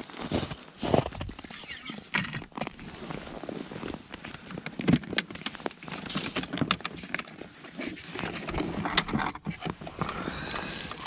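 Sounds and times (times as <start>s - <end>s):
soft crunches and clicks: 0.0s - 11.0s
glove and jacket fabric rustling: 2.8s - 4.5s.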